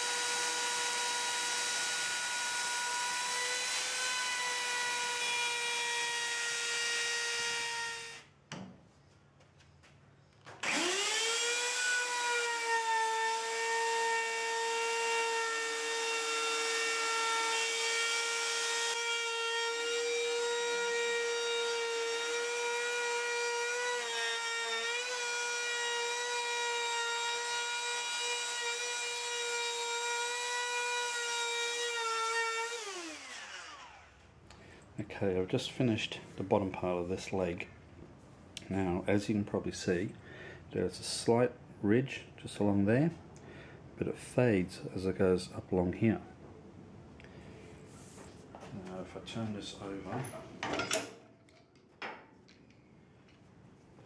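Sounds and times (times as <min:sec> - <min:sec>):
electric router whining: 0:10.6 - 0:20.3, 0:22.0 - 0:34.2.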